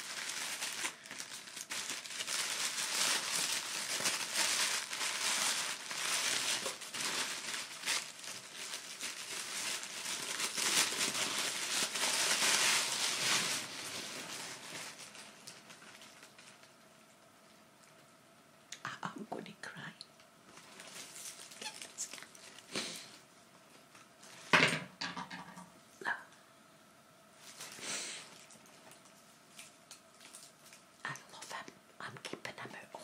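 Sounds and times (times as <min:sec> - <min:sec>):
wrapping paper crinkling and tearing: 0:00.0 - 0:16.9, 0:20.5 - 0:23.2, 0:27.4 - 0:31.6.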